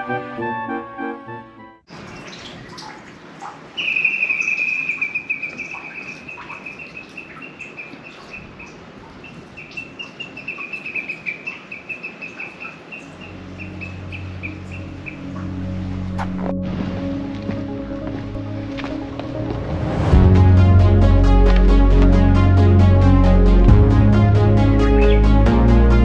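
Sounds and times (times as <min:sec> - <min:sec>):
bird chirping rapidly: 0:03.7 - 0:15.4, 0:24.8 - 0:25.3.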